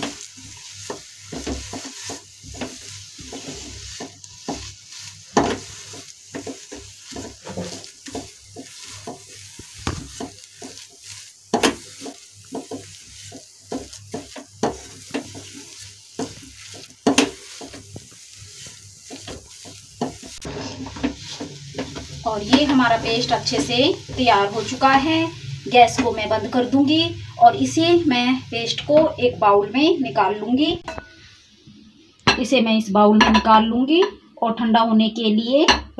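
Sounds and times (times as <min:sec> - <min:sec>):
spatula scraping frying pan: 0:00.0 - 0:26.8.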